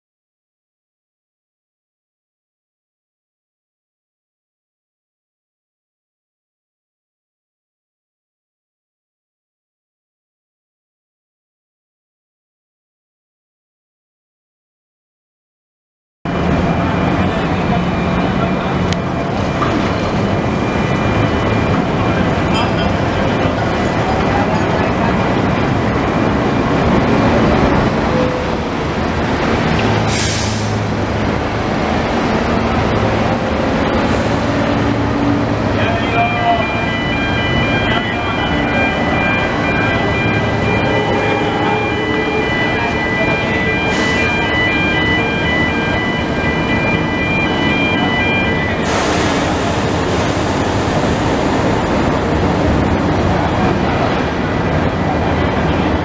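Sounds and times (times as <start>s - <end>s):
heavy vehicle engine running: 16.3s - 56.0s
high warning tone: 16.4s - 24.9s, 33.0s - 52.7s
air release hiss: 30.1s - 30.8s, 48.8s - 50.6s
low rumble of heavy machinery: 44.7s - 56.0s
loud hiss: 48.8s - 52.0s.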